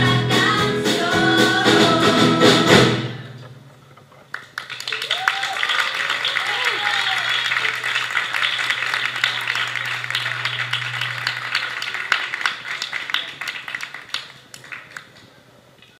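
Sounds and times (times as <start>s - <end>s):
applause: 4.3s - 15.3s.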